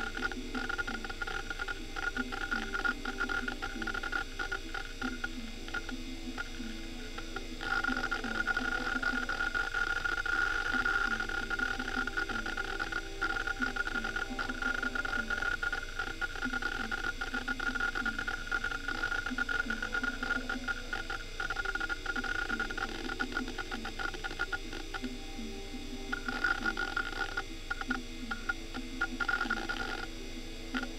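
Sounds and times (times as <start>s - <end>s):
hard drive actuator clicks: 0.0s - 30.9s
hard drive high whine: 0.0s - 30.9s.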